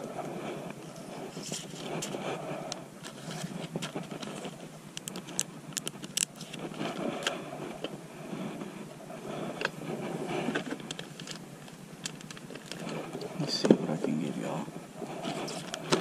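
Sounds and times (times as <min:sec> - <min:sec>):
plastic items rummaged: 0:10.5 - 0:14.2.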